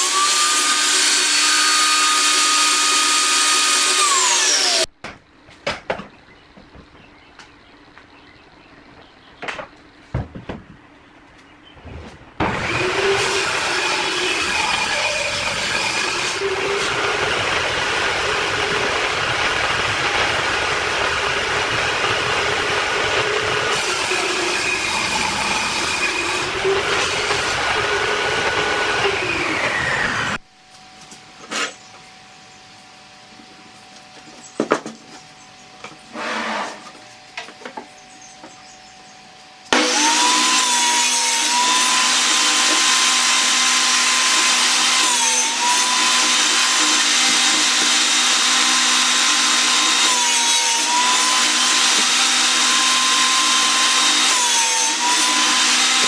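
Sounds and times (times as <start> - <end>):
saw blade whine: 0.0 - 4.9, 12.4 - 35.0, 35.8 - 56.0
table saw cutting board: 0.0 - 4.9, 12.4 - 30.4, 31.4 - 31.9, 35.9 - 37.1, 39.7 - 56.0
boards knocking: 9.4 - 10.8.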